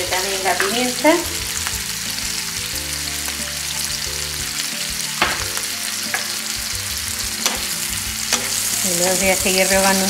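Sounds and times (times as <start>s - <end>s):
food sizzling in a frying pan: 0.0s - 10.0s.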